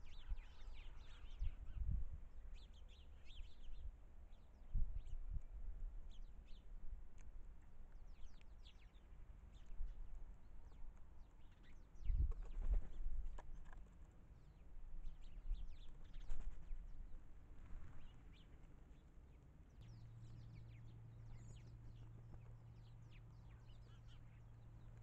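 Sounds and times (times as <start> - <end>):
birds chirping: 18.0 - 25.0.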